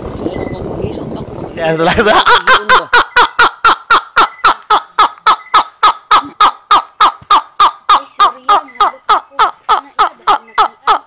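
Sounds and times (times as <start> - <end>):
man laughing hard: 1.8 - 3.8.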